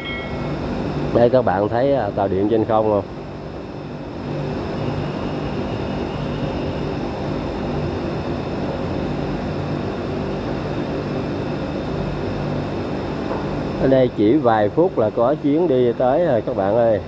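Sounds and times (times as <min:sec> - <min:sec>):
electric train humming: 0:00.0 - 0:01.1.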